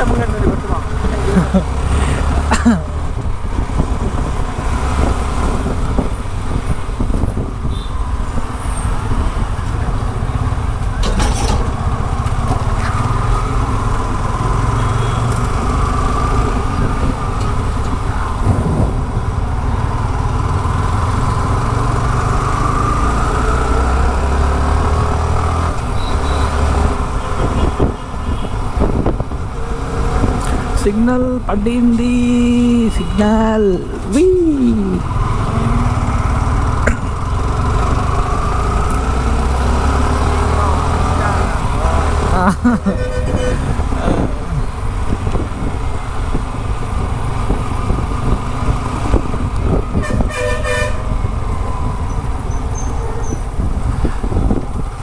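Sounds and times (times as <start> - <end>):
passing vehicles: 0.0 - 55.0
wind on microphone: 3.0 - 10.9, 16.3 - 21.3, 26.7 - 30.8, 42.8 - 55.0
motorcycle engine: 34.8 - 46.1.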